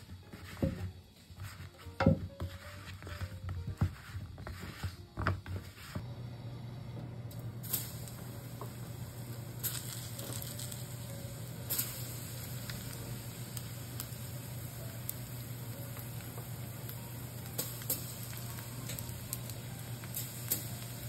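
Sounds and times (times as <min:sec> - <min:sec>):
steady low hum: 0:03.3 - 0:21.0
oil sizzling in a frying pan: 0:07.3 - 0:21.0.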